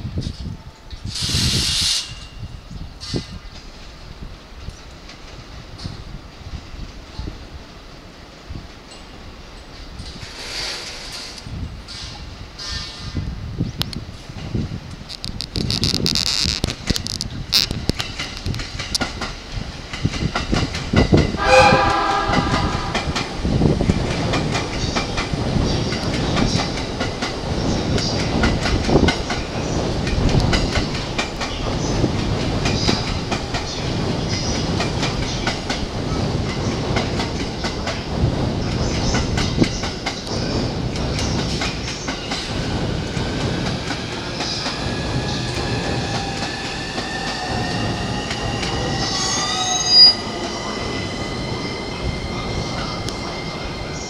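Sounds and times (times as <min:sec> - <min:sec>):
train wheels clattering over joints: 0:14.3 - 0:54.0
train whine: 0:17.8 - 0:54.0
sharp squeal: 0:47.0 - 0:54.0.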